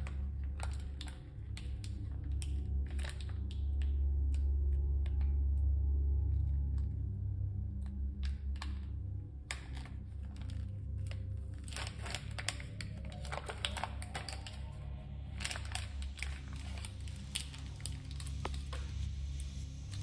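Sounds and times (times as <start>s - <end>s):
steady low hum: 0.0s - 20.0s
plastic packet crinkling: 10.3s - 19.5s.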